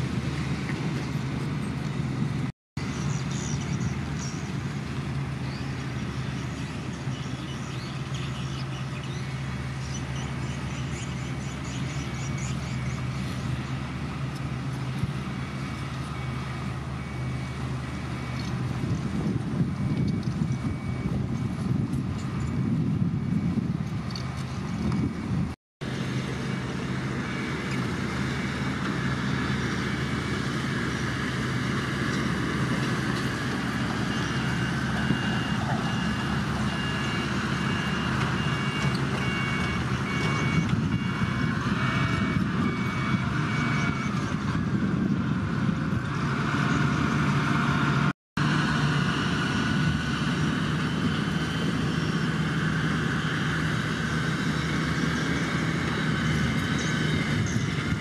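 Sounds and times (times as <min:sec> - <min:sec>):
bulldozer diesel engine running: 0:00.0 - 0:58.0.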